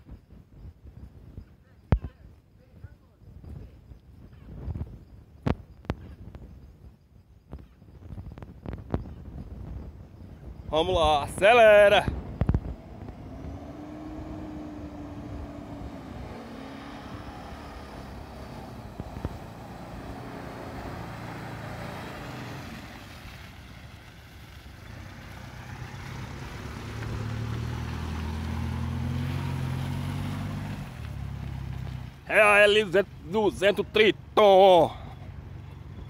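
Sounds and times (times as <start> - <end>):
pickup truck engine revving: 11.5 - 23.8, 24.8 - 33.7.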